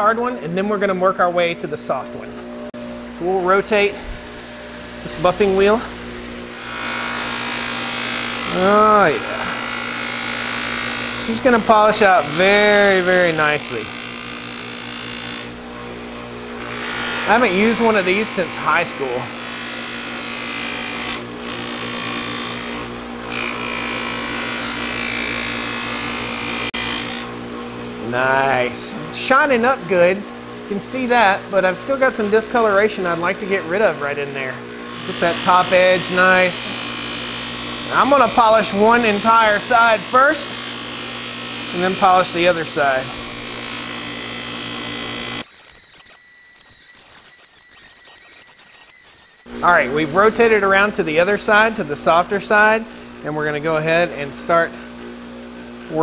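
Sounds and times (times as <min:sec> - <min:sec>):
bench buffer motor hum: 0:00.2 - 0:56.0
blade hissing on buffing wheel: 0:03.7 - 0:15.5, 0:16.6 - 0:22.8, 0:34.9 - 0:49.4.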